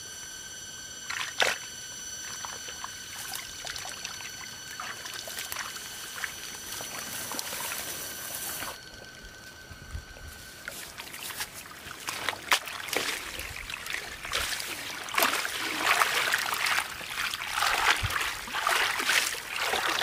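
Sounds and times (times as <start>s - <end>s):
steady high-pitched whine: 0.0s - 20.0s
water splashing and trickling: 2.3s - 7.8s, 10.7s - 20.0s.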